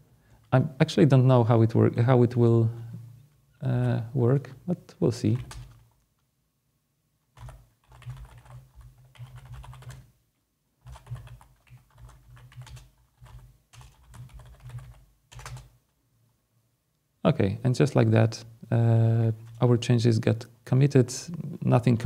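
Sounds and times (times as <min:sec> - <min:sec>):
typing on computer keyboard: 0:05.3 - 0:05.9, 0:07.4 - 0:10.1, 0:10.8 - 0:15.8.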